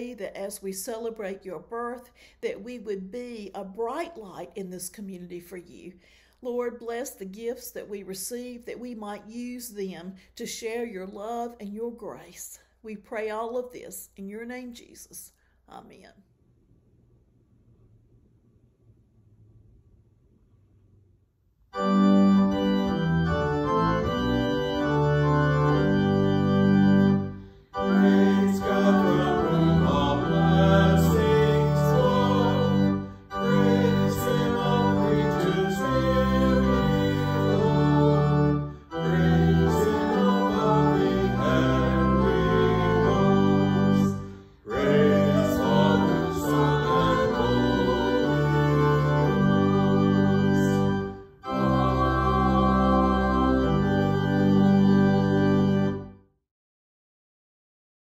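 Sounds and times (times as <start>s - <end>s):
organ playing chords: 21.7s - 56.3s.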